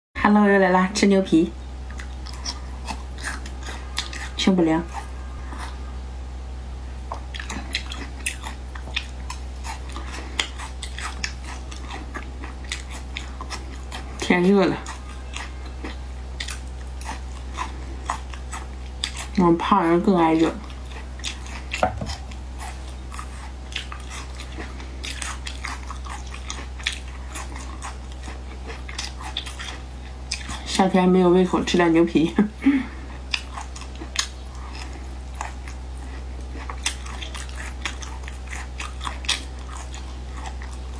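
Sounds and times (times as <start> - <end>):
steady low hum: 0.2 - 40.9
wet chewing mouth clicks: 7.1 - 19.4, 20.6 - 30.7, 33.3 - 40.9.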